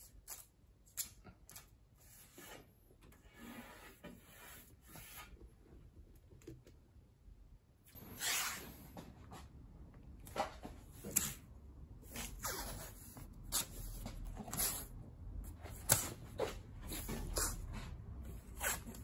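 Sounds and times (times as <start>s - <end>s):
hand rubbing tape: 0.0s - 5.4s, 8.0s - 8.9s, 10.2s - 19.0s.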